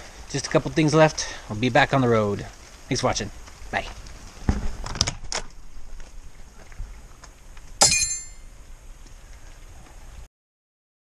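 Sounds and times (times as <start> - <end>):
sharp metallic clank: 7.8 - 8.4.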